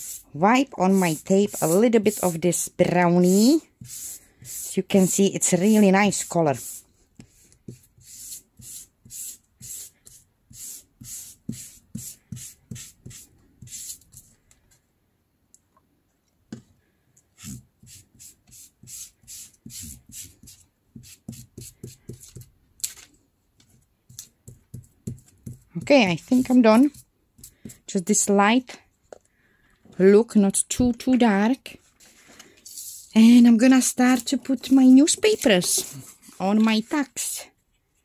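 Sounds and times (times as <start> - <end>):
felt pad scrubbing tape: 0.0 - 6.8.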